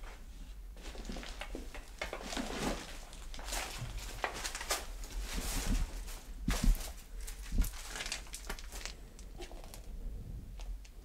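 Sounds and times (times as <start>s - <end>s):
footsteps crunching through debris: 0.8s - 9.0s.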